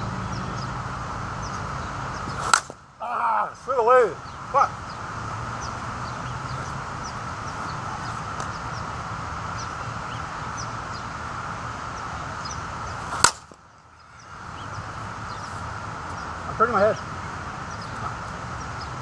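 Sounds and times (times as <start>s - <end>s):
small birds chirping: 0.0s - 19.0s
bat hitting softball: 2.3s - 2.8s, 13.0s - 13.6s.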